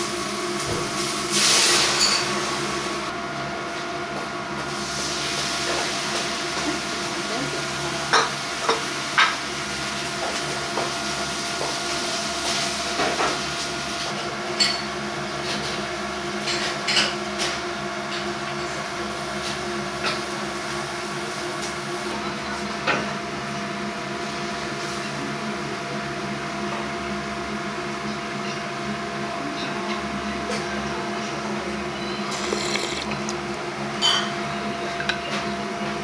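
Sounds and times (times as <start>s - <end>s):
steady kitchen hum: 0.0s - 36.0s
dishes and utensils clinking: 2.0s - 2.4s, 32.0s - 35.6s.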